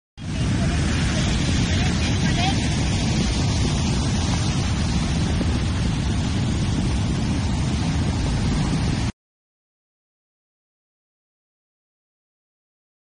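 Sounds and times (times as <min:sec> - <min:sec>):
surf breaking: 0:00.2 - 0:09.1
wind rumbling on microphone: 0:00.2 - 0:09.2.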